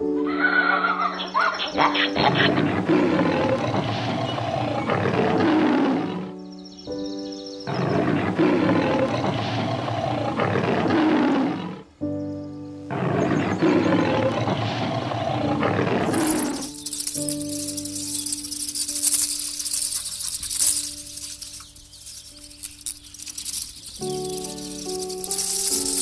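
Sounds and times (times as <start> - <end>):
background music: 0.0 - 26.0
lion roaring: 2.0 - 6.4, 7.7 - 11.9, 12.9 - 16.8.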